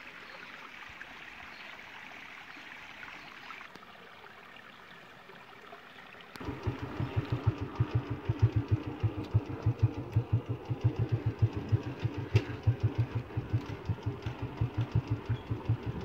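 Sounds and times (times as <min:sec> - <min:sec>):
vehicle engine pulsing: 0:06.4 - 0:16.0.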